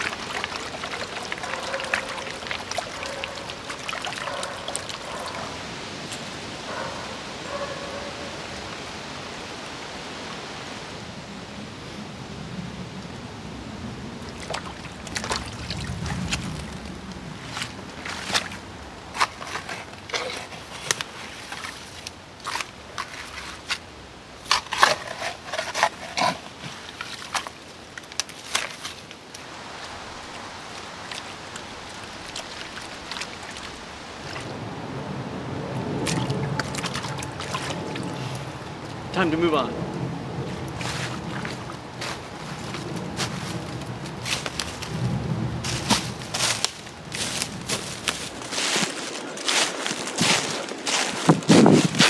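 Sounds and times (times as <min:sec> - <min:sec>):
gravel scraping and stones clinking: 0:15.2 - 0:29.1, 0:40.8 - 0:45.0, 0:45.6 - 0:52.0.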